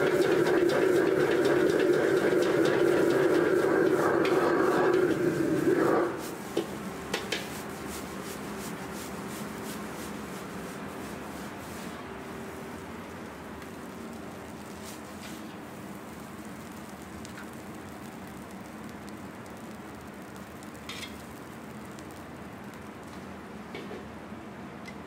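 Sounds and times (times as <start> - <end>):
ladle stir-frying in wok: 0.0 - 5.6, 6.2 - 22.8
kitchen hum: 0.0 - 19.8.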